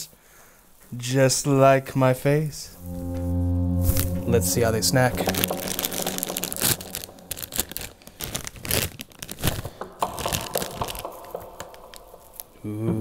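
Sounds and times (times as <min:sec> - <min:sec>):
foil snack bag crinkling: 0:06.8 - 0:12.4.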